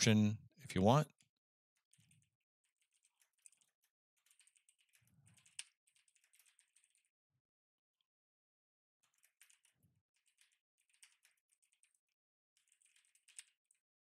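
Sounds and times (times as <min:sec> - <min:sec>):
faint keyboard typing: 0:01.0 - 0:07.2, 0:09.0 - 0:14.0.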